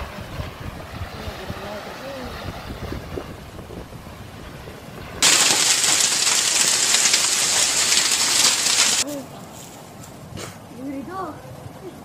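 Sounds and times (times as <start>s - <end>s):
loud steady hiss: 5.2s - 9.0s.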